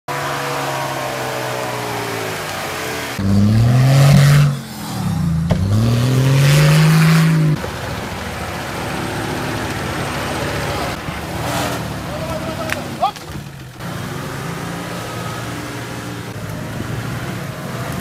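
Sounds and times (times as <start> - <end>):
engine revving hard: 0.1 - 7.6, 8.9 - 12.3.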